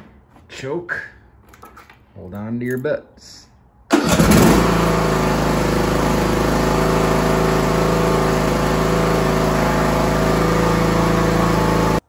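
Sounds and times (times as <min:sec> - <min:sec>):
riding mower engine running: 0:03.9 - 0:12.0.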